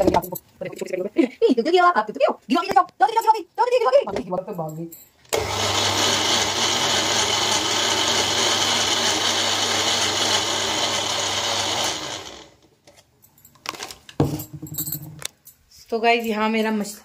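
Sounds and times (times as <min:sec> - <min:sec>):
electric mixer grinder running: 0:05.3 - 0:12.6
motor winding down: 0:05.3 - 0:12.6.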